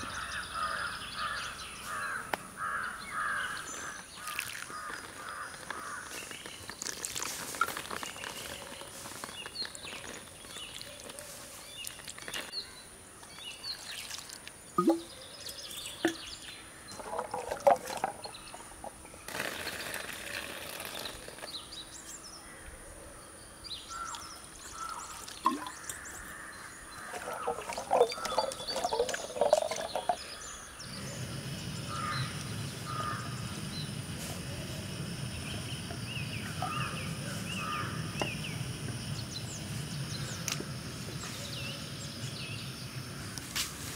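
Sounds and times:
water splashing in metal bowl: 4.2 - 5.1, 16.9 - 19.0, 24.7 - 26.1, 26.9 - 30.4
faint bird calls: 22.4 - 39.4.

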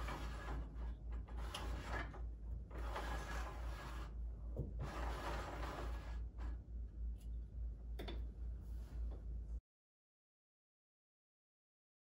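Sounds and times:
roller shade mechanical rustling: 0.0 - 4.2, 4.8 - 6.6.

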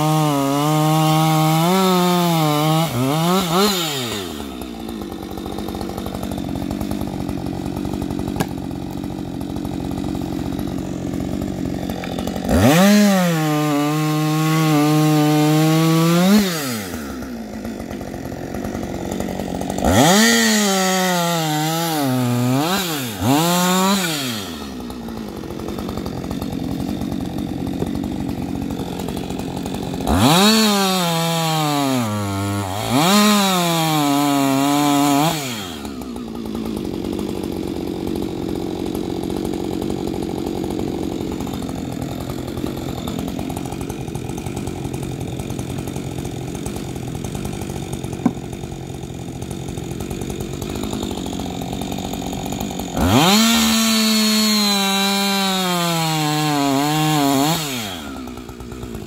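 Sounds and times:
chainsaw idling and revving: 0.0 - 59.0.

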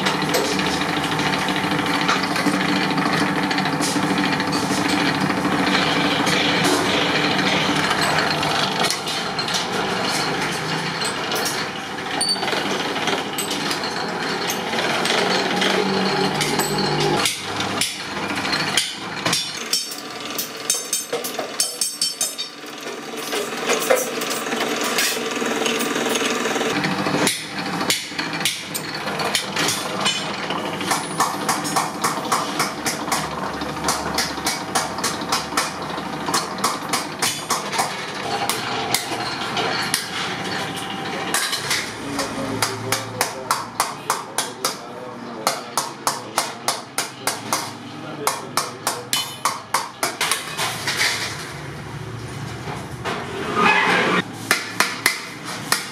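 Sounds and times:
flanging machine working metal sheet: 0.0 - 43.2.

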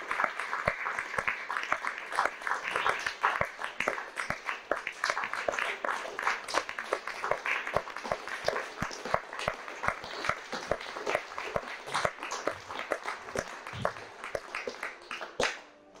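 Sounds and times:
audience applauding: 0.0 - 15.7.

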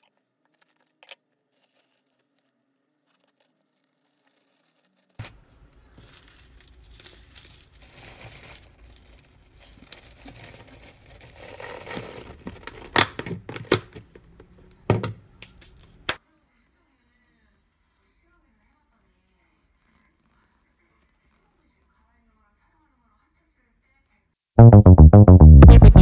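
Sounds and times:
dry sheets crinkling: 3.1 - 14.4
plastic lid latches snapping: 12.7 - 14.2.

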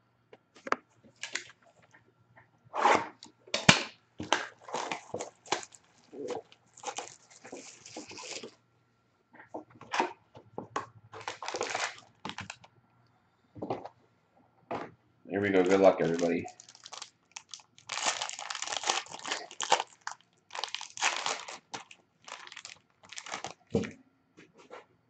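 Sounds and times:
plastic shrink wrap crinkling: 1.1 - 1.7, 4.2 - 8.6, 11.1 - 12.7, 15.4 - 23.9.

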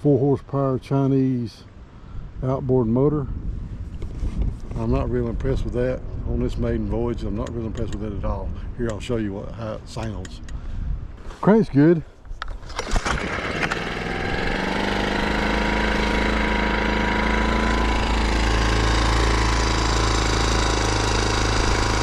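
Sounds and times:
outboard motor pull-start: 12.4 - 22.0
outboard motor running: 12.7 - 22.0.

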